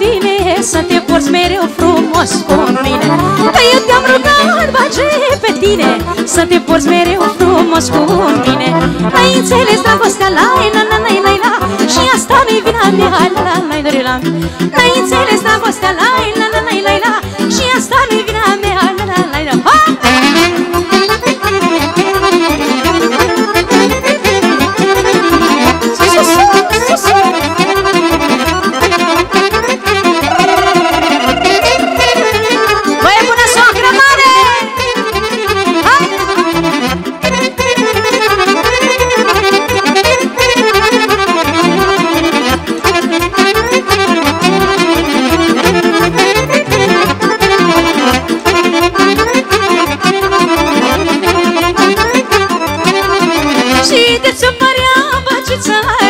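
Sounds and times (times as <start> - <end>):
fast accordion runs: 0.0 - 56.0
fast instrumental party music: 0.0 - 56.0
lead instrument long wavering note: 30.2 - 32.7
quick steady bass beat: 30.3 - 32.6.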